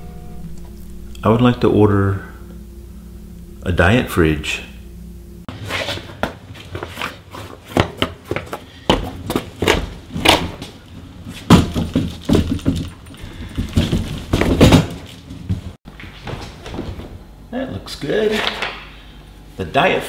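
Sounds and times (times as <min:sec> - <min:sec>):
hand truck thuds and bangs: 0:11.4 - 0:15.6.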